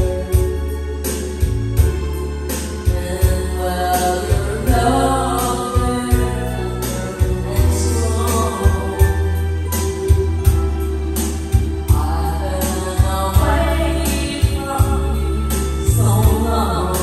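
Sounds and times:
karaoke backing track: 0:00.0 - 0:17.0
girl singing into microphone: 0:02.8 - 0:10.6, 0:11.8 - 0:17.0.

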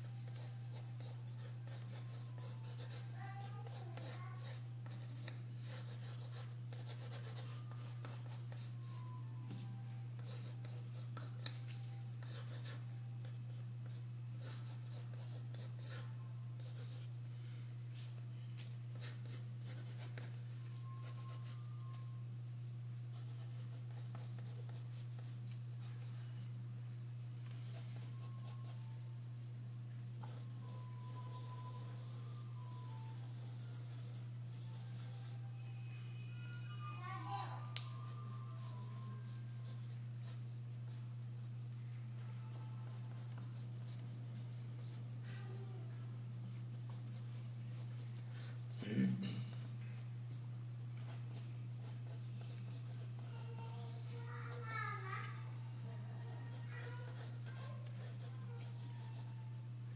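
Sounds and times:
steady low hum: 0:00.0 - 0:59.9
pencil sketching on paper: 0:00.3 - 0:08.7, 0:23.1 - 0:26.2, 0:27.7 - 0:29.5, 0:30.1 - 0:35.4, 0:51.0 - 0:53.6, 0:56.2 - 0:59.3.

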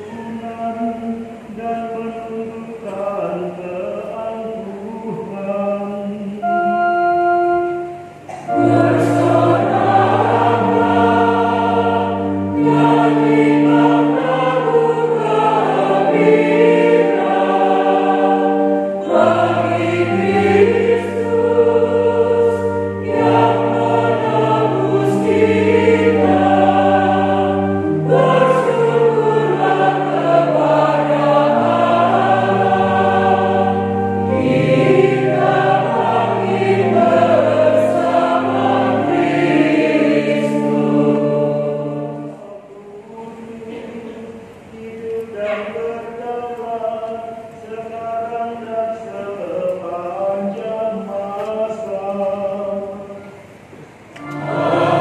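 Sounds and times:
choir singing a hymn: 0:00.0 - 0:55.0
electronic organ: 0:04.6 - 0:42.7, 0:51.8 - 0:55.0.

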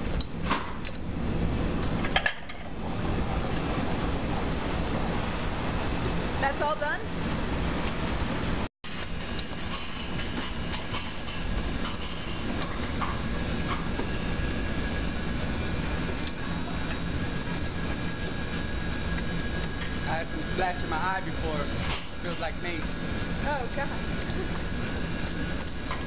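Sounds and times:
kitchen din: 0:21.7 - 0:26.0.

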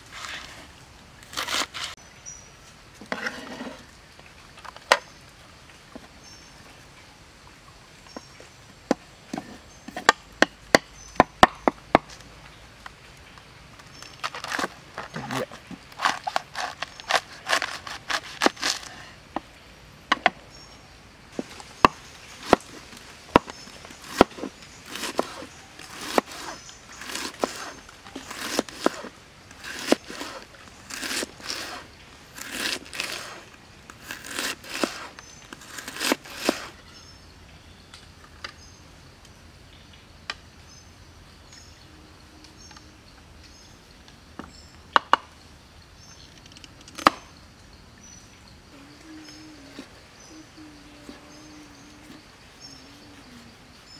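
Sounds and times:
knife cutting cabbage on board: 0:01.3 - 0:02.0, 0:16.0 - 0:18.9, 0:24.0 - 0:33.4, 0:34.0 - 0:36.7.

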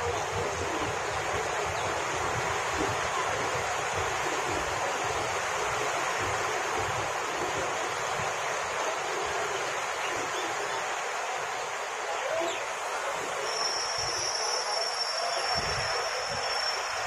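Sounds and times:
train coaches rolling past: 0:12.7 - 0:17.0.

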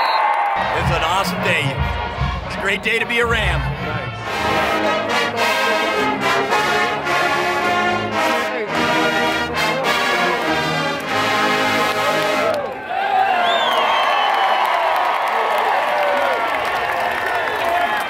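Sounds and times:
brass sustained chords: 0:00.6 - 0:12.6
marching band playing: 0:00.6 - 0:12.6.

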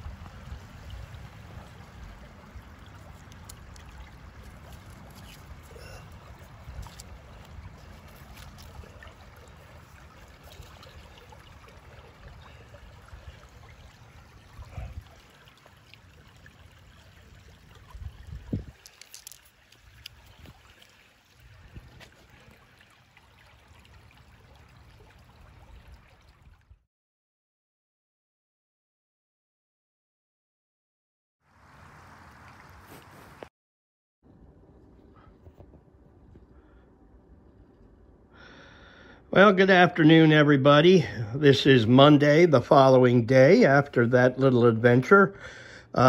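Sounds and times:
water trickling over gravel: 0:00.0 - 0:26.7, 0:31.6 - 0:33.5.

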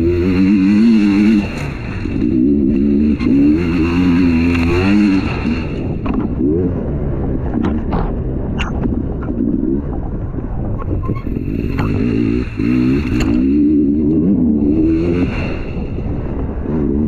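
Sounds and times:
dirt bike engine revving: 0:00.0 - 0:08.4, 0:11.2 - 0:17.0
sharp knocks and clatter: 0:07.5 - 0:09.0.

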